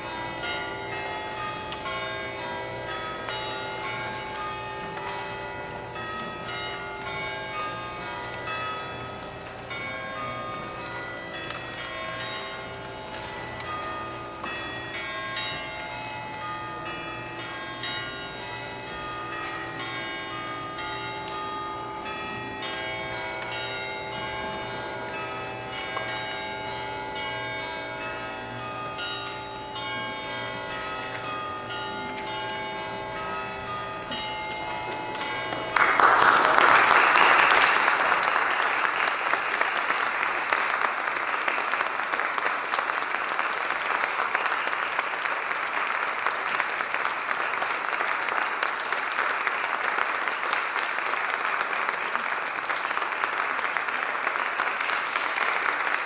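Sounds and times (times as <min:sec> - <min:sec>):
audience applause: 0:35.7 - 0:56.0.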